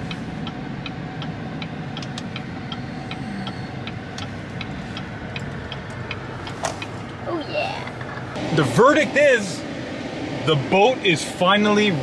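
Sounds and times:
turn signal ticking: 0:00.0 - 0:08.4
engine humming: 0:00.0 - 0:12.0.

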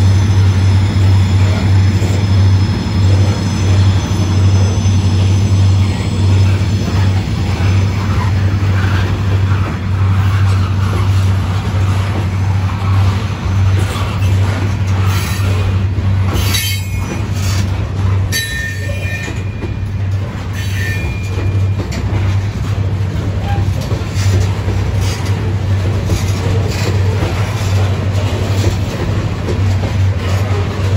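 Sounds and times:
high wheel squeals: 0:00.0 - 0:06.8, 0:20.5 - 0:21.8
freight train rumbling past: 0:00.0 - 0:30.9.

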